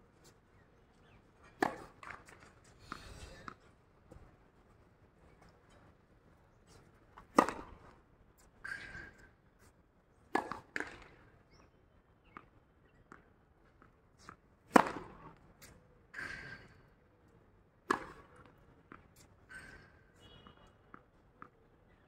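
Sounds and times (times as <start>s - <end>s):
tennis ball hit by racket: 1.5s - 2.4s, 7.2s - 7.9s, 10.3s - 11.2s, 14.7s - 15.4s, 17.8s - 19.0s.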